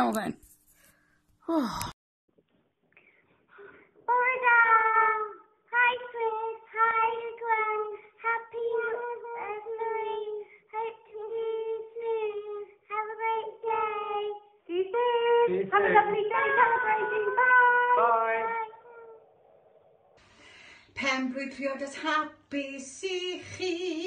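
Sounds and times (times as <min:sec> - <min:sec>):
girls singing together: 0:14.7 - 0:18.8.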